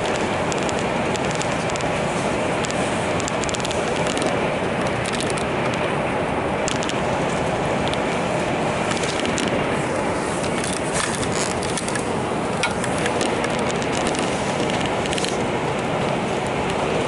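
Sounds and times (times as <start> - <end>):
vehicle running noise: 0.0 - 17.0
light clicks and rattles: 10.4 - 16.8.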